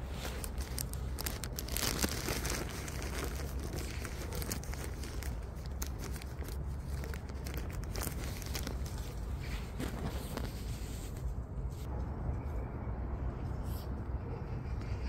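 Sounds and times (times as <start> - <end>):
dry leaves crunching underfoot: 0.0 - 11.3.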